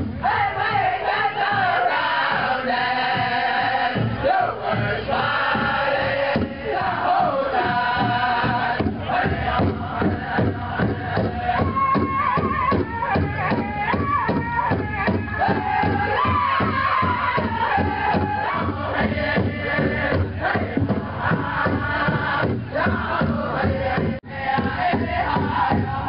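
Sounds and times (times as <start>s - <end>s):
steady drumbeat on big drum: 0.0s - 26.0s
group chanting: 0.2s - 26.0s.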